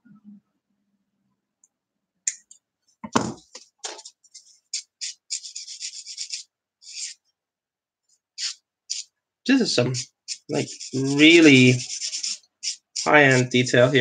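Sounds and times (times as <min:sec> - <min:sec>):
knock on workbench: 0:03.0 - 0:03.4
sanding stick rasping plastic: 0:09.9 - 0:14.0.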